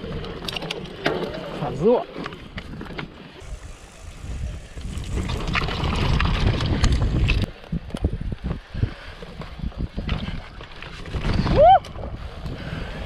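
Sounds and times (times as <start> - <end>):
bike tyres rolling on grass: 0.0 - 13.0
wind over microphone: 1.6 - 13.0
bike rattling and knocking: 4.7 - 8.5, 9.2 - 12.4.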